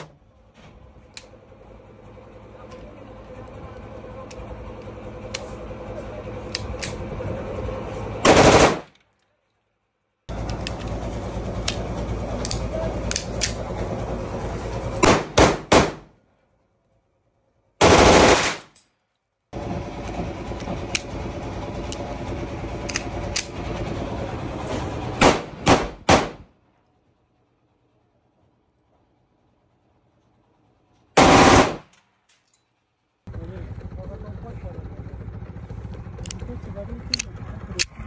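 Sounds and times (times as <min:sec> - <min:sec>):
pistol shots: 0:08.2 - 0:08.9, 0:15.0 - 0:16.1, 0:25.2 - 0:26.4, 0:31.2 - 0:31.9.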